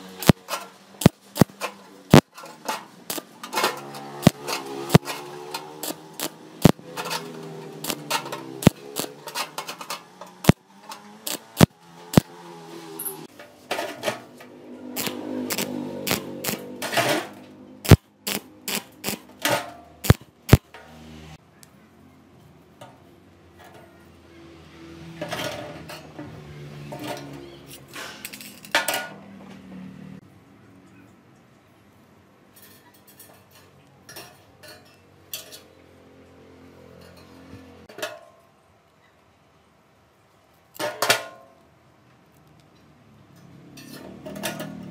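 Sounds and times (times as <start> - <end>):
welding arc crackling and sizzling: 0.0 - 2.3, 3.1 - 3.4, 4.2 - 6.8, 7.7 - 9.4, 11.2 - 12.3, 15.0 - 16.7, 17.8 - 19.3, 20.0 - 20.7
sharp welding pops: 0.2 - 2.3, 4.2 - 5.2, 5.8 - 6.8, 7.8 - 9.2, 11.3 - 12.3, 15.0 - 16.7, 17.8 - 19.3, 20.0 - 20.7.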